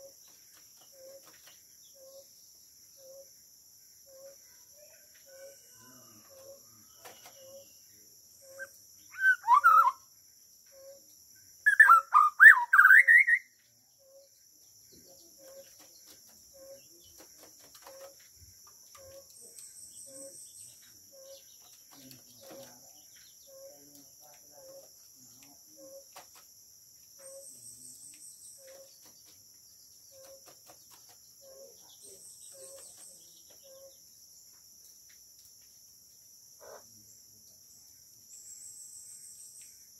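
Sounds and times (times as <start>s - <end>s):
high insect drone: 0.0s - 11.8s
bird singing sweeping notes: 8.4s - 10.1s, 11.6s - 13.5s.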